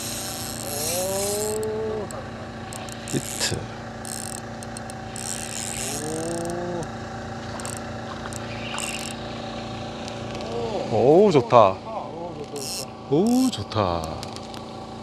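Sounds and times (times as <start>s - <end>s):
sharp clicks: 0.0s - 6.6s
fishing reel winding: 0.0s - 9.3s, 12.4s - 13.6s
boat engine hum: 0.0s - 15.0s
person moaning: 0.7s - 2.3s, 5.8s - 7.0s.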